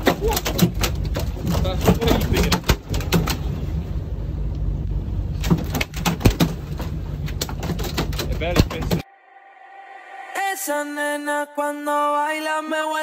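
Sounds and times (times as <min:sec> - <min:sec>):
sharp knocks and clatter: 0:00.0 - 0:03.6, 0:05.4 - 0:09.0
boat engine rumbling: 0:00.0 - 0:09.0.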